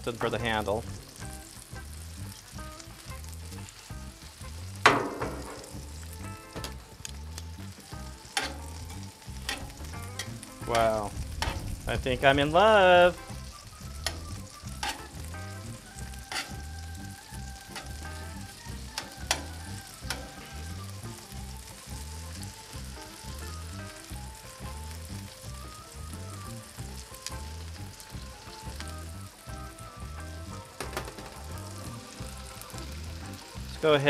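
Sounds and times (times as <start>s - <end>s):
background music with a beat: 0.0s - 34.0s
bacon sizzling in a pan: 0.0s - 34.0s
metal tongs clicking on a pan: 8.3s - 10.4s, 14.0s - 14.2s, 14.8s - 15.1s, 16.3s - 16.6s, 19.0s - 20.4s.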